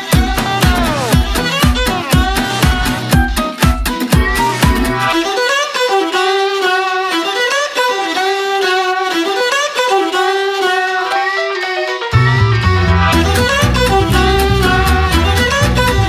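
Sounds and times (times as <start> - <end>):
beat with low drums: 0.0 - 3.4, 12.2 - 16.0
melody of sliding held notes: 4.2 - 16.0.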